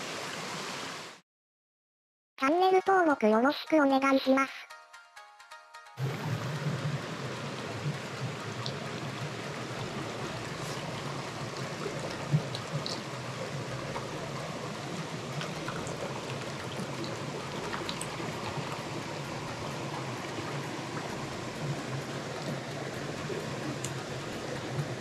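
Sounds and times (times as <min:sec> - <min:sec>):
stream running over rocks: 0:06.0 - 0:25.0.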